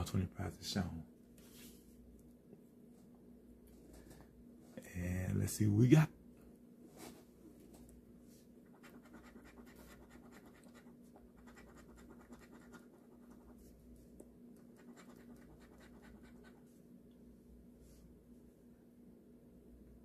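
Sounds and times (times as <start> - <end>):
faint steady hum: 0.0 - 20.0
coin scratching lottery ticket: 8.7 - 13.5, 14.8 - 16.6.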